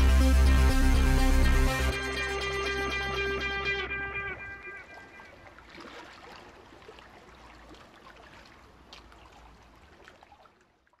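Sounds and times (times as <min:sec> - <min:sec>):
water splashing and trickling: 0:03.9 - 0:11.0.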